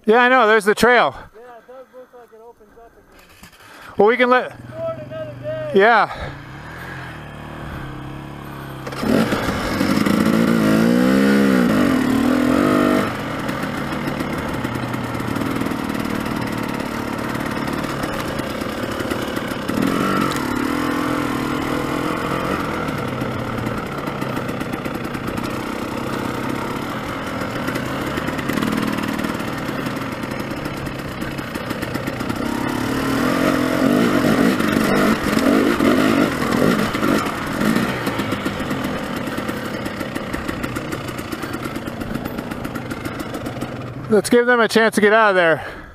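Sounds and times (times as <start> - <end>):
dirt bike engine revving: 3.2 - 45.8.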